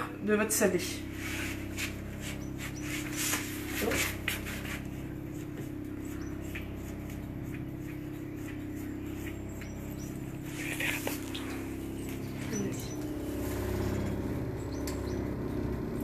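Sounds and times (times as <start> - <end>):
steady low hum: 0.0 - 16.0
utensils tapping and scraping dough: 1.8 - 11.5.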